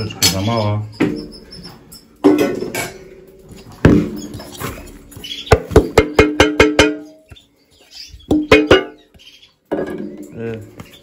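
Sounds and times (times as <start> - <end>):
spoon knocking against a bowl: 5.6 - 7.4.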